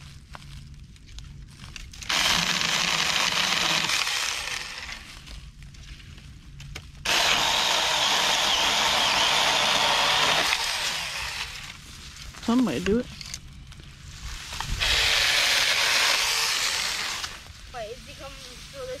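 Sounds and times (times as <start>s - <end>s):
mini chainsaw cutting branches: 2.0s - 5.3s, 7.0s - 11.8s, 14.6s - 17.5s.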